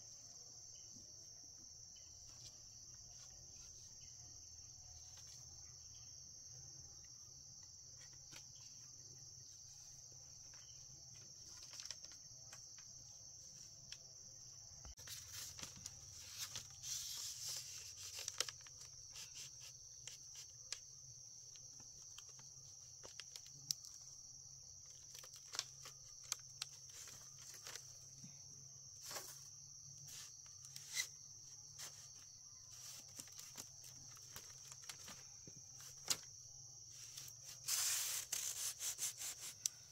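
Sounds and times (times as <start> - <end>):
rustling: 14.9 - 36.3, 36.9 - 39.9.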